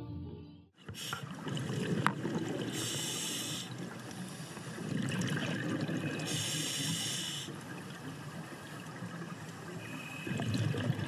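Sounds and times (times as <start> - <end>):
hissing regulator inhale: 0.9 - 1.3, 2.7 - 4.8, 6.2 - 7.7, 9.8 - 10.4
burble of exhaled bubbles: 1.1 - 2.9, 4.7 - 6.3, 10.2 - 11.0.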